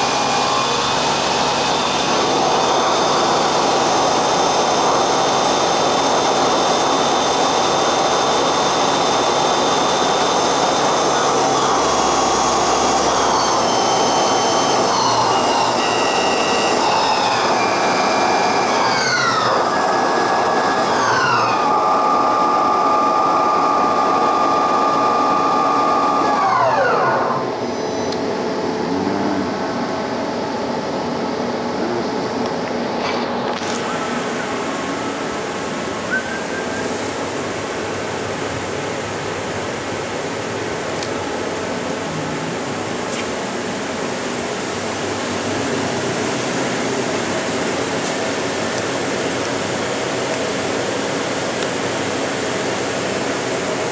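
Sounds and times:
lathe spindle whine: 0.0 - 39.6
steady machine hum: 0.0 - 53.9.

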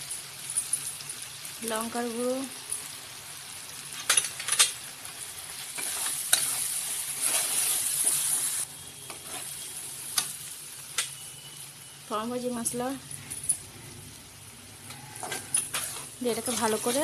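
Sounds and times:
spices sizzling in oil: 0.0 - 17.0
metal spatula scraping pan: 5.7 - 9.7, 14.9 - 17.0.

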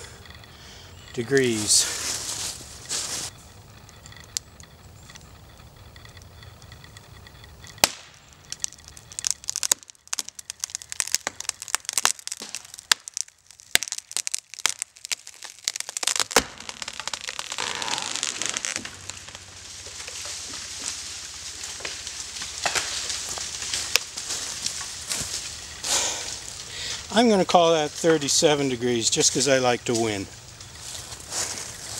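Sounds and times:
wood cracking and splintering: 1.1 - 31.9
rushing noise of falling tree: 7.6 - 27.4.

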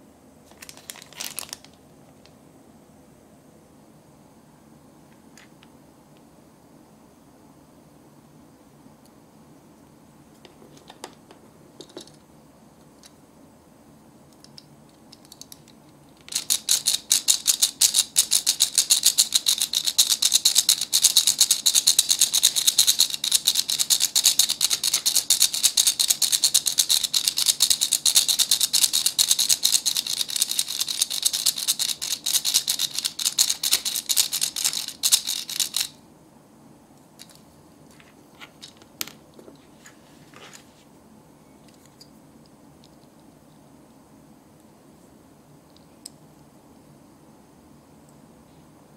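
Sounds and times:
toy hand mixer clicking rattle: 16.3 - 35.9.

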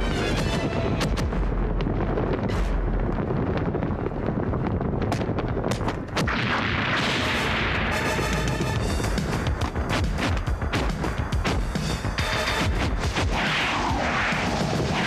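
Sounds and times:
crackling hissing firework blast: 12.9 - 15.0.

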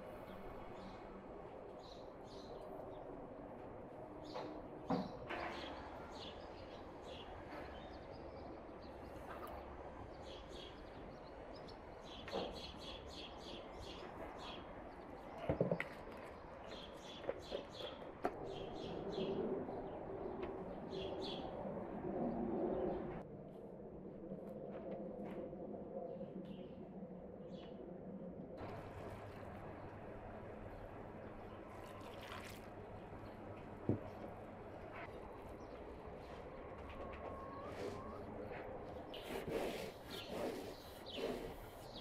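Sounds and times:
small birds chirping: 4.2 - 21.6, 37.0 - 42.0.

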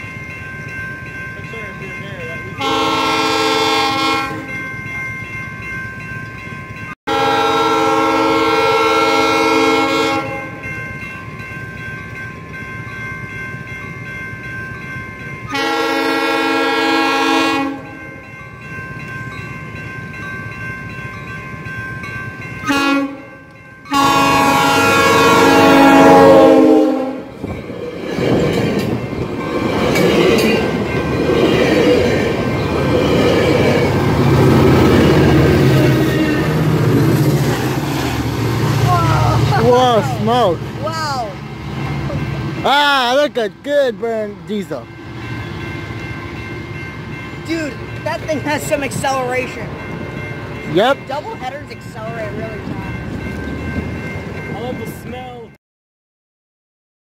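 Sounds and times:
crossing bell ringing: 0.0 - 55.6
train horn blasts: 2.6 - 4.6, 7.1 - 10.7, 15.5 - 18.0, 22.6 - 27.4
train wheels rushing past: 24.0 - 55.4.

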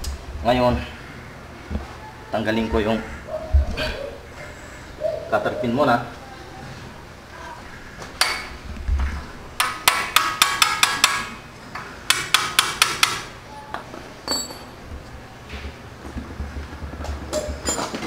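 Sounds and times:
hammer tapping on steel: 9.6 - 11.3, 12.1 - 13.3.

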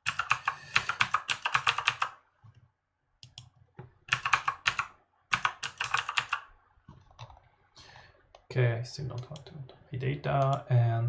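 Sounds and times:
computer keyboard typing: 0.0 - 2.2, 3.2 - 7.4, 10.4 - 10.7.

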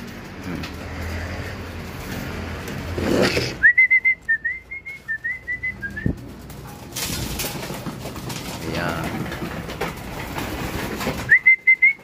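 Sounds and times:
person whistling: 3.6 - 6.1, 11.3 - 12.0.

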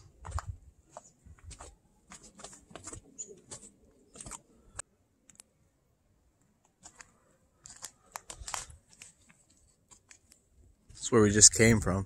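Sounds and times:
footsteps on dirt trail: 0.0 - 4.4.

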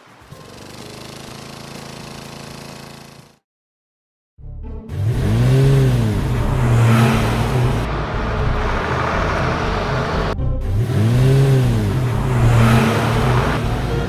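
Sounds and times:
road noise: 0.0 - 3.2, 4.9 - 14.0
car engine hum: 4.9 - 14.0.

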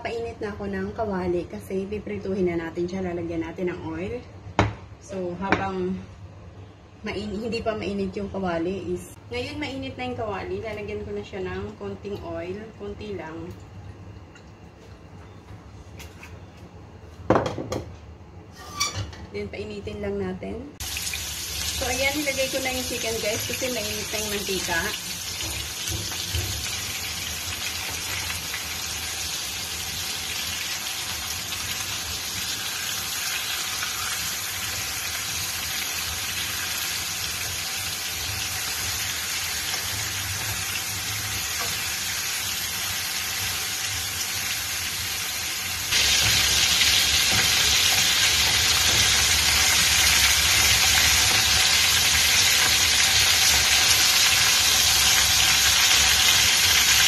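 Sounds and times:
chicken sizzling in a frying pan: 20.8 - 57.0.

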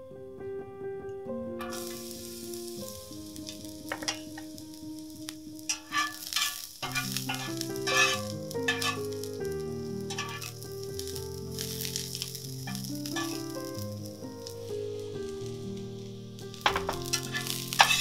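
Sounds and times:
metal spatula scraping a pan: 1.6 - 2.0, 3.9 - 4.4, 5.7 - 9.2, 10.1 - 10.6, 12.7 - 13.6, 16.6 - 18.0
garlic sizzling in hot oil: 1.6 - 18.0.

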